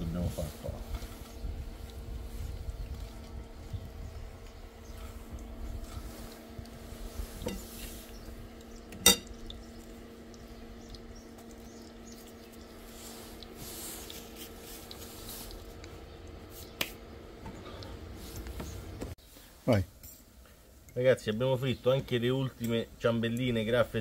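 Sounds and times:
steady hum: 0:00.0 - 0:24.0
metal utensil knocking on cookware: 0:09.0 - 0:09.3.

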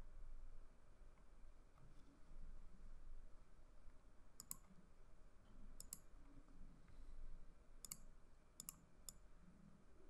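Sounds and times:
computer mouse clicks: 0:04.4 - 0:04.8, 0:05.8 - 0:07.0, 0:07.8 - 0:09.3.

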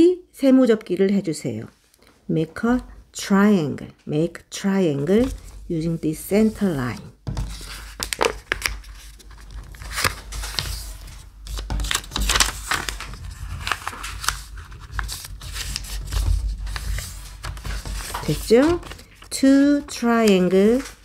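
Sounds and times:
paper rustling and creasing: 0:05.0 - 0:21.0.

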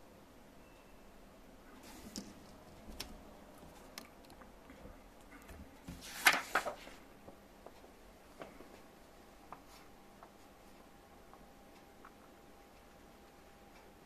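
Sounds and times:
paper rustling: 0:05.8 - 0:07.0.

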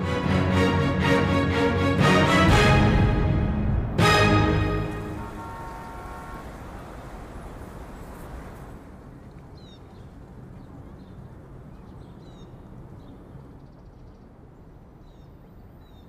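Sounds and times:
music: 0:00.0 - 0:05.4.

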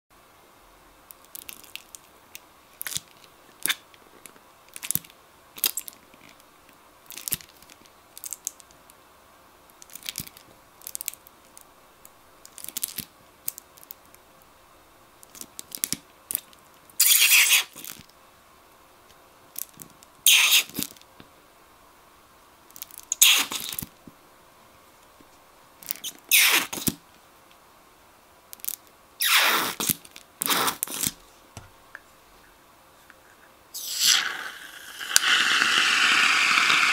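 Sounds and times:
glue squirting from nozzle: 0:17.0 - 0:17.8, 0:20.3 - 0:20.8, 0:23.1 - 0:23.7, 0:26.3 - 0:26.9, 0:29.2 - 0:31.0, 0:33.8 - 0:36.9.

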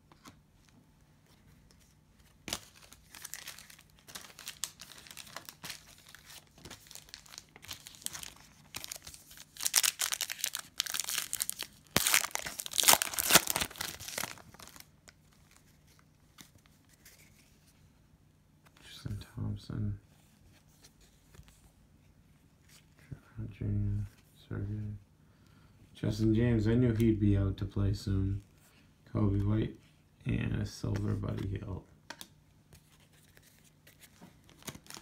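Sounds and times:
cellophane wrapper crinkling and tearing: 0:02.5 - 0:16.0, 0:33.2 - 0:35.0.

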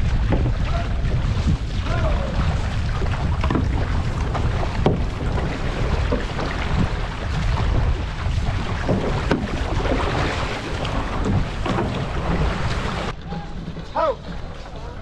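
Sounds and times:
paddle splashes: 0:00.0 - 0:15.0
water washing around canoe: 0:00.0 - 0:15.0
wind rumbling on microphone: 0:00.0 - 0:15.0.

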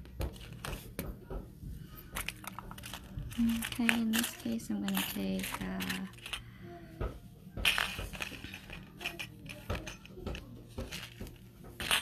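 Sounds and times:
beads and tools clinking: 0:02.1 - 0:06.5, 0:07.6 - 0:12.0.

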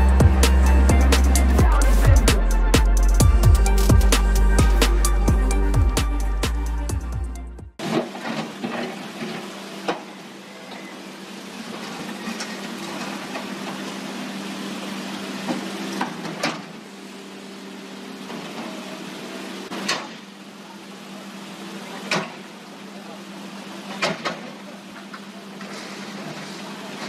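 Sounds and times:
diesel engine running: 0:00.0 - 0:27.0
water rushing through rocky channel: 0:07.8 - 0:20.4.

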